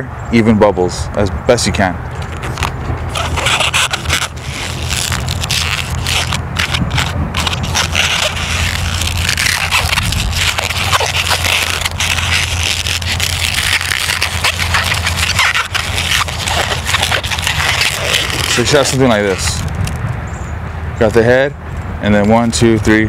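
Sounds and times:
steady low rumble: 0:00.9 - 0:23.0
balloon rubber squeaking: 0:02.2 - 0:20.0.

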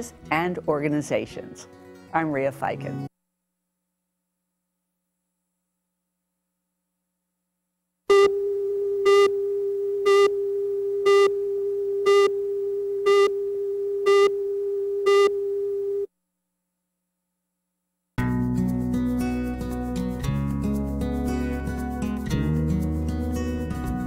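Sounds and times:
music: 0:00.0 - 0:03.1, 0:18.2 - 0:24.0
count beeps: 0:11.1 - 0:11.3, 0:12.1 - 0:12.3, 0:13.1 - 0:13.3, 0:14.1 - 0:14.3, 0:15.1 - 0:15.3
steady test tone: 0:13.0 - 0:16.1.

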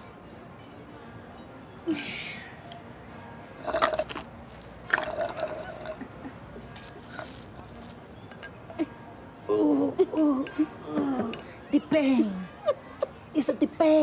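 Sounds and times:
soft background music: 0:00.0 - 0:14.0
slurping through a straw: 0:03.6 - 0:06.0, 0:06.9 - 0:08.0.

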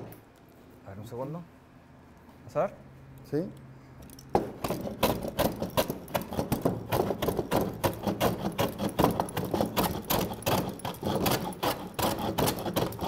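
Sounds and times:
hand plane shaving wood: 0:04.9 - 0:13.0.

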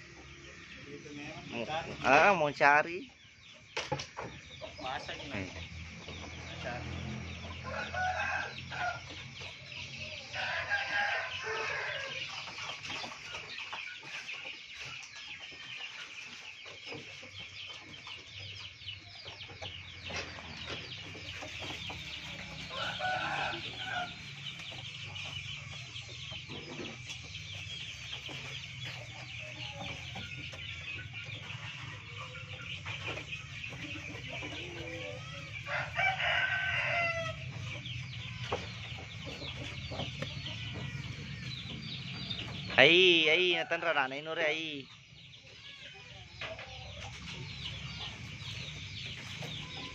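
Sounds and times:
chickens clucking: 0:00.0 - 0:49.9
rooster crowing: 0:06.6 - 0:09.2, 0:10.2 - 0:12.2, 0:22.4 - 0:24.4, 0:34.6 - 0:37.4.

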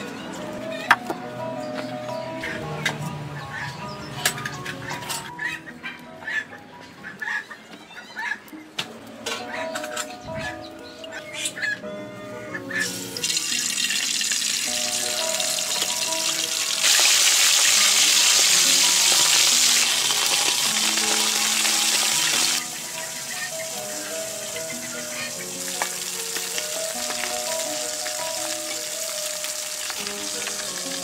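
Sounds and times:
background music: 0:00.0 - 0:31.0
fish sizzling in oil: 0:12.8 - 0:31.0.

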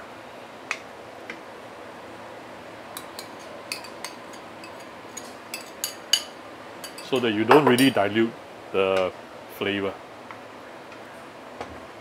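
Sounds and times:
faint steady hiss: 0:00.0 - 0:11.4
spatula and bowl clinking on wok: 0:03.0 - 0:08.0.

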